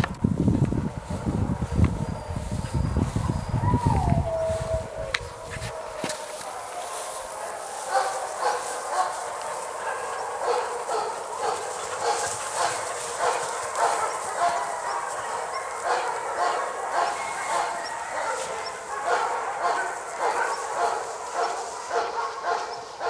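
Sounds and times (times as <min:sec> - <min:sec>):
dog barking: 0:01.9 - 0:23.0.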